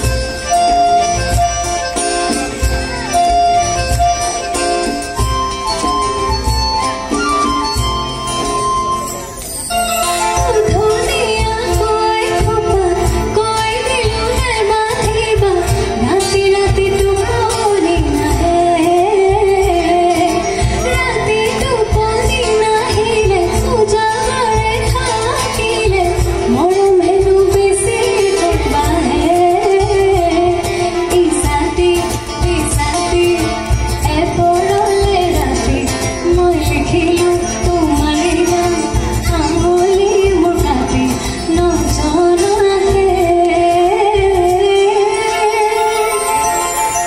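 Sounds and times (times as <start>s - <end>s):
acoustic band playing: 0.0s - 47.0s
woman singing into microphone: 10.0s - 47.0s.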